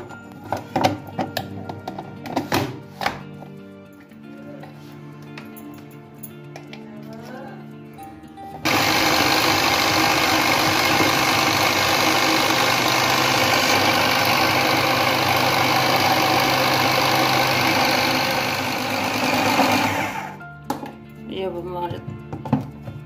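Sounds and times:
food processor motor running: 8.6 - 20.4.

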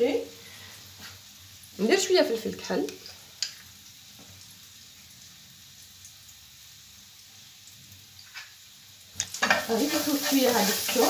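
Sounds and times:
garlic sizzling in a frying pan: 0.0 - 11.0.

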